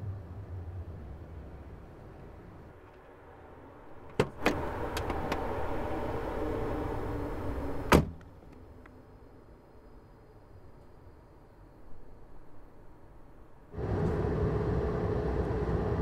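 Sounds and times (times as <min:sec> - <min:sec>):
steady background noise: 0:00.0 - 0:16.0
car door slammed shut: 0:07.9 - 0:08.2.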